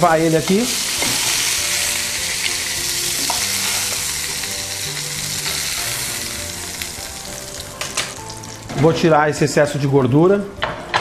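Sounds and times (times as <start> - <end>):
fish sizzling in a frying pan: 0.0 - 8.8.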